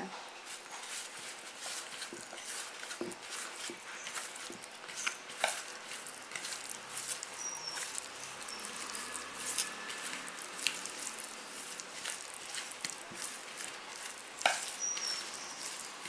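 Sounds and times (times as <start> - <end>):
hand squelching wet paste: 0.4 - 16.0.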